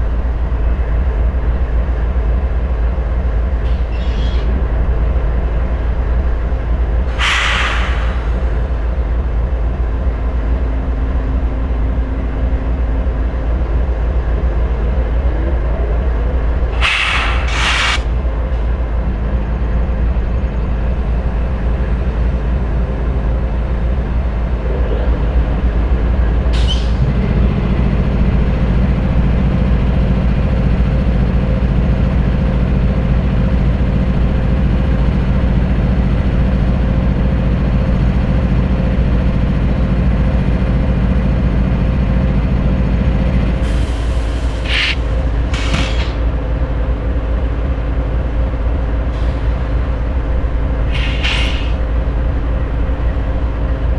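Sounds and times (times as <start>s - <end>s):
diesel locomotives idling: 0.0s - 53.9s
air hissing: 7.1s - 8.5s, 16.8s - 18.1s, 50.9s - 51.8s.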